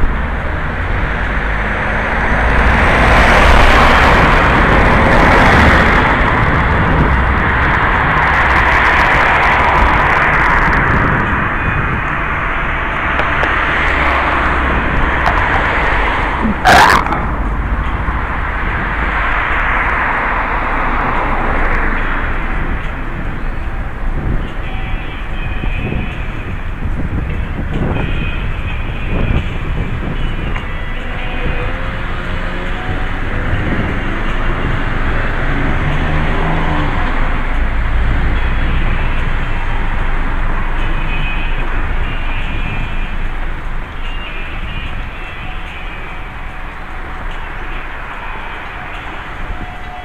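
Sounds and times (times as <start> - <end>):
steady rushing microphone noise: 0.0 - 30.9
road traffic: 0.0 - 50.0
low rumble: 3.5 - 23.1.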